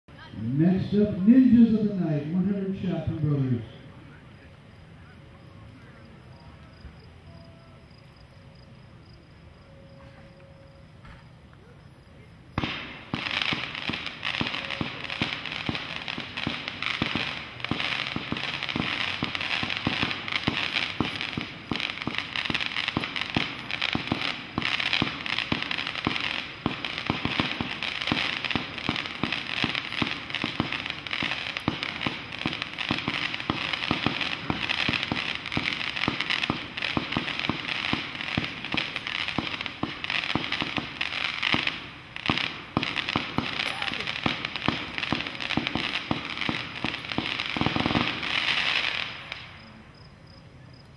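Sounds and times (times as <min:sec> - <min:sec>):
fireworks cake popping: 0:12.5 - 0:49.6.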